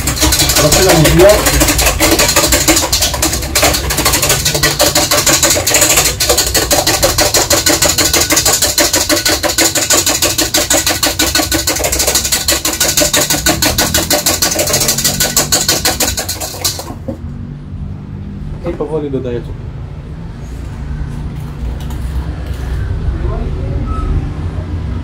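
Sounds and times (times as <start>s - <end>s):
beaters rattling against bowl: 0.0s - 17.2s.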